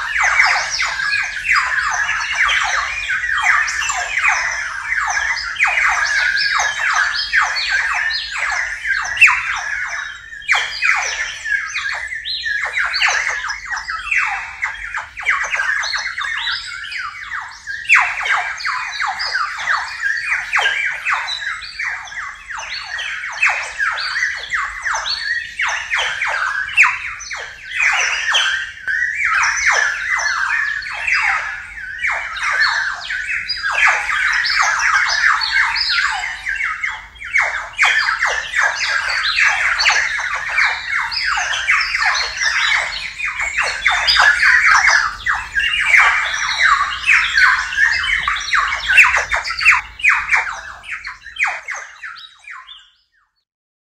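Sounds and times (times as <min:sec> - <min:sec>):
clay bird whistle warbling: 0:17.0 - 0:52.9.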